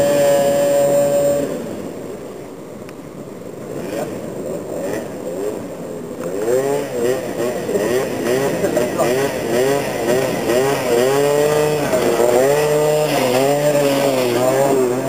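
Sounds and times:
scooter engine revving: 0.0 - 2.0, 3.7 - 15.0.

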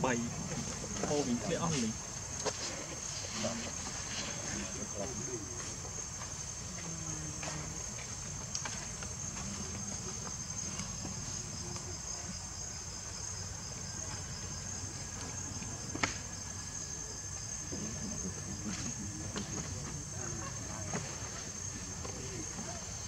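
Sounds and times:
insect chorus drone: 0.0 - 23.0.

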